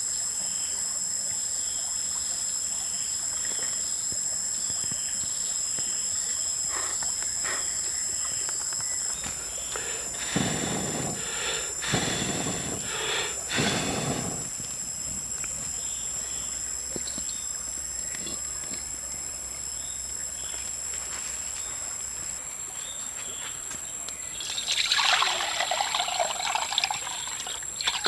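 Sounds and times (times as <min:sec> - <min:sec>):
high-pitched insect drone: 0:04.7 - 0:17.4.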